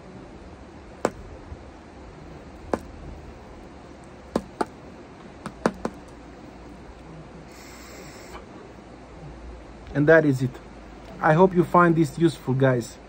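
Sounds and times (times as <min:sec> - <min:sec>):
pipe tapped against palm: 0:05.4 - 0:06.0.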